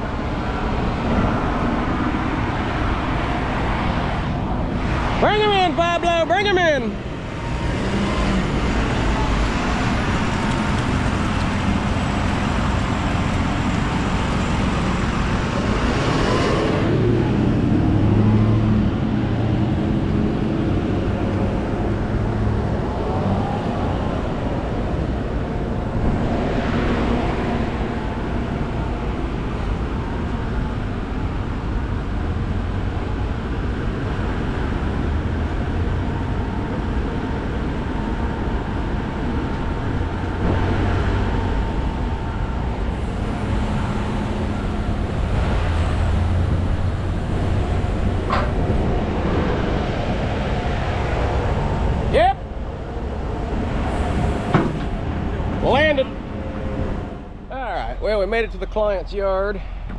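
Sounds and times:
truck engine and road noise: 0:00.0 - 0:59.9.

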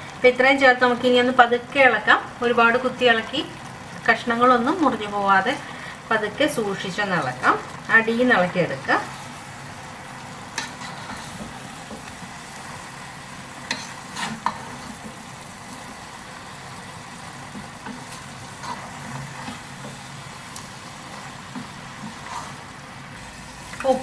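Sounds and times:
sizzle from hot pan: 0:00.0 - 0:24.0
spatula scraping and knocking pan: 0:10.5 - 0:12.1, 0:13.6 - 0:16.0, 0:21.1 - 0:22.7.

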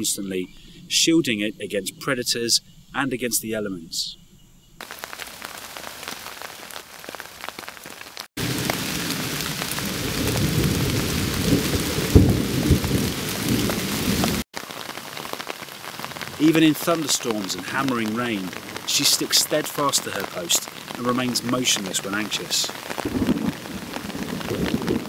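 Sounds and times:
heavy downpour: 0:04.8 - 0:25.0
rain on foliage: 0:04.8 - 0:25.0
low thunder rumble: 0:08.4 - 0:14.4, 0:23.0 - 0:25.0.

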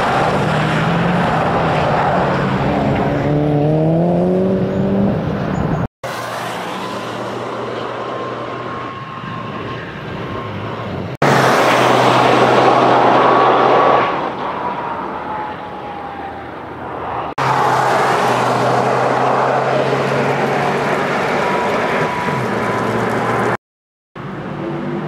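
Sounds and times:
car engine revving: 0:00.0 - 0:05.4.

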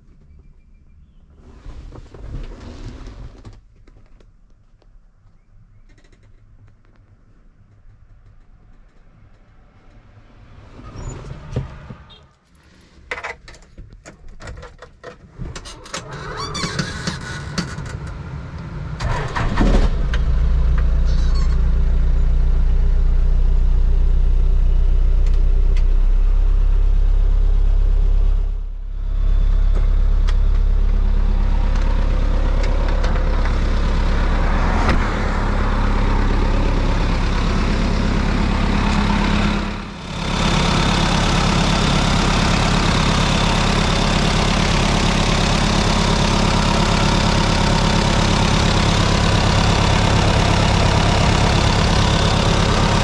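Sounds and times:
diesel engine idling: 0:18.0 - 0:53.0.

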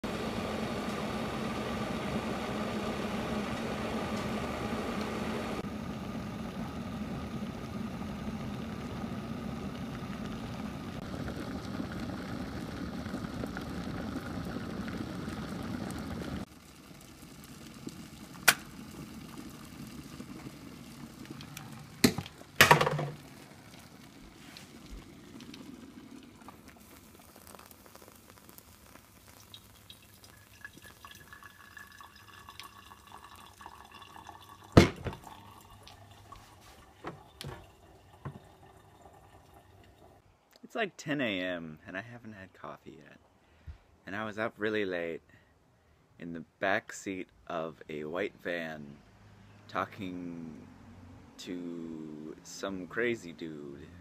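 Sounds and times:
kettle heating with rushing hiss: 0:00.0 - 0:40.2
water pouring onto coffee grounds: 0:06.8 - 0:40.2.

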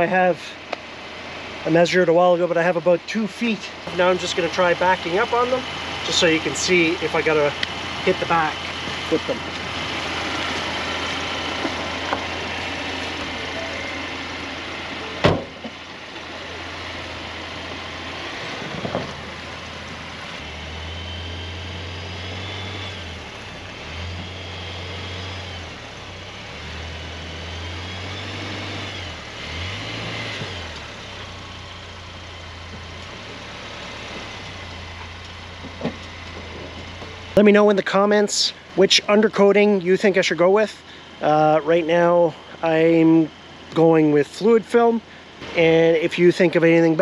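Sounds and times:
truck engine idling and revving: 0:00.0 - 0:47.0
car door shutting: 0:15.1 - 0:15.8.

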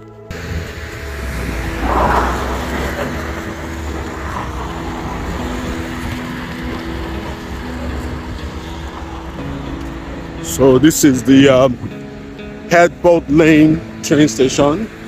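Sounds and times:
low rumble of traffic: 0:00.0 - 0:15.0
vehicle passing on wet road: 0:00.3 - 0:10.0.

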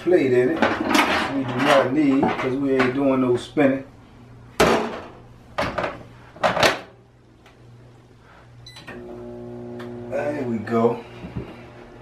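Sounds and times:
microwave running hum: 0:06.6 - 0:12.0.

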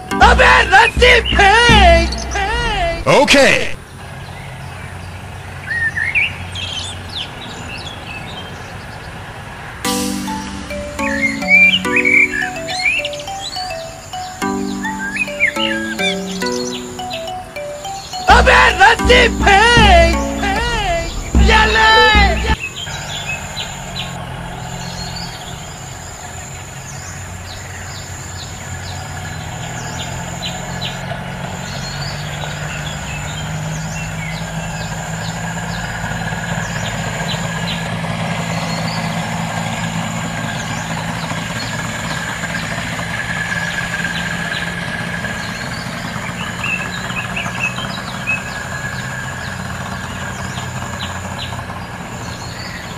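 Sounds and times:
birds chirping: 0:10.2 - 0:31.0.

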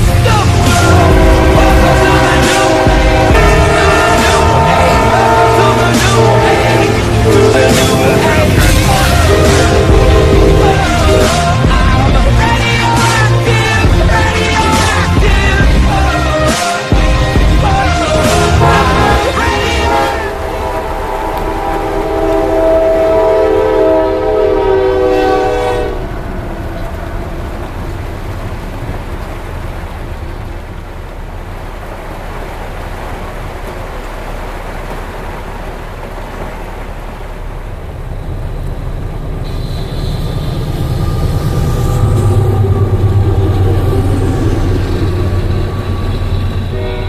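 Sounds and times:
heavy rain hiss: 0:00.0 - 0:47.0
passing train deep rumble: 0:00.0 - 0:47.0
train rumbling through crossing: 0:00.0 - 0:47.0
train air horn: 0:00.5 - 0:11.8, 0:16.4 - 0:26.9, 0:39.4 - 0:47.0.

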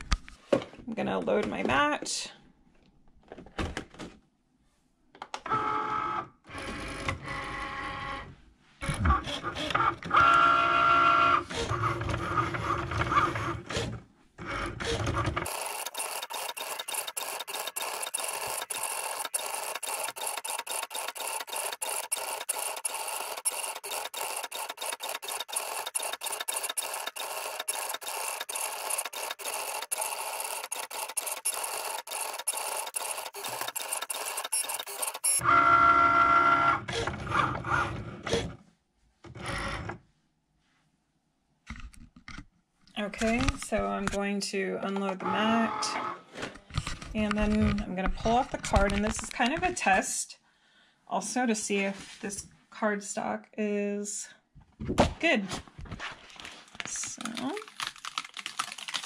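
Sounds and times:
rapid mechanical chatter: 0:15.4 - 0:35.4
motor whirring: 0:15.4 - 0:35.5.

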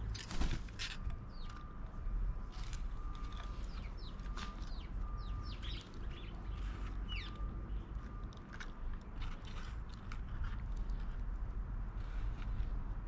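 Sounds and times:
wings flapping: 0:00.1 - 0:00.8.

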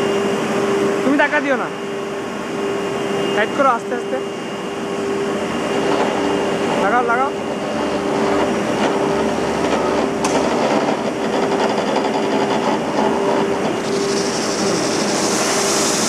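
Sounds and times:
drum sander humming: 0:04.4 - 0:16.0
bright hiss: 0:13.8 - 0:16.0.

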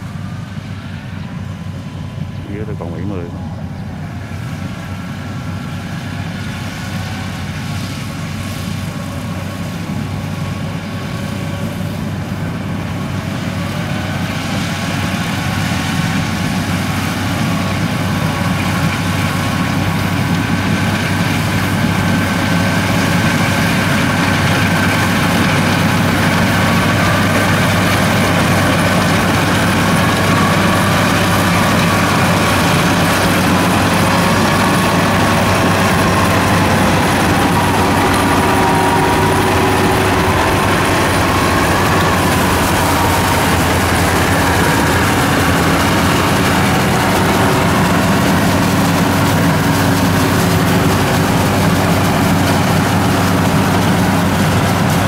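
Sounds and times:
combine harvester running: 0:00.0 - 0:55.0.

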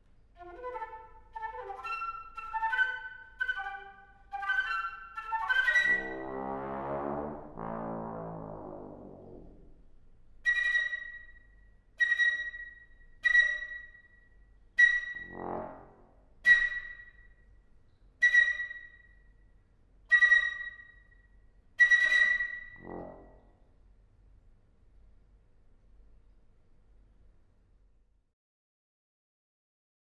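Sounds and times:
breathy flute notes: 0:00.4 - 0:09.7, 0:14.8 - 0:17.3, 0:18.2 - 0:19.1, 0:20.1 - 0:21.1
low trombone note: 0:05.8 - 0:10.0, 0:15.2 - 0:16.1.

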